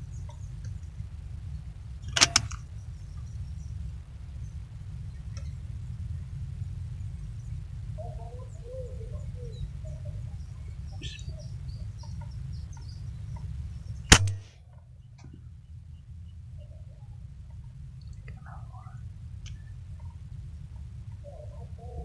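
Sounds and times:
low steady rumble: 0:00.0 - 0:22.0
air rifle shot crack: 0:02.1 - 0:02.6, 0:14.1 - 0:14.6
short bird calls: 0:07.2 - 0:17.6, 0:18.3 - 0:22.0.

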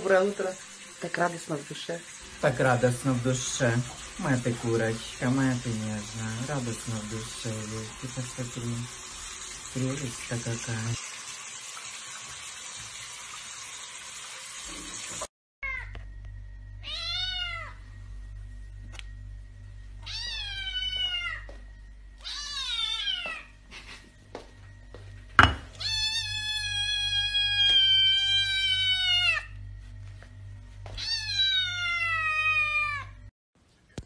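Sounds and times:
tap water running: 0:00.0 - 0:15.3
kitten meowing: 0:20.0 - 0:21.4, 0:22.2 - 0:23.4.

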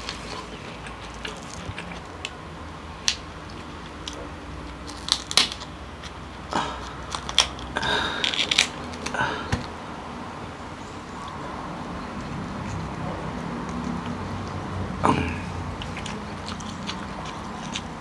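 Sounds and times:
shell cracking and crunching: 0:03.0 - 0:09.8, 0:15.7 - 0:18.0
scissors snipping crab shell: 0:07.1 - 0:09.1.

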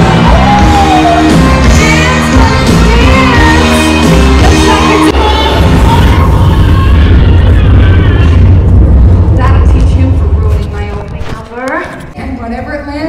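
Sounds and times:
pop music with singing: 0:00.0 - 0:08.6
heavy bass line: 0:00.0 - 0:11.0.

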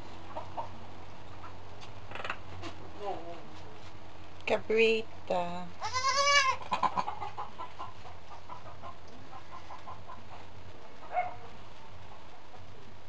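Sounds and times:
goat kid bleating: 0:05.8 - 0:06.7.

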